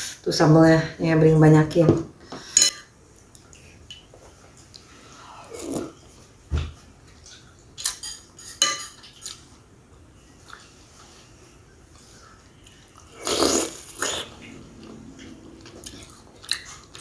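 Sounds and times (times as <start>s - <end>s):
soft chewing: 3.1s - 6.3s, 10.2s - 17.0s
cutlery clinking on ceramic plate: 7.8s - 9.4s.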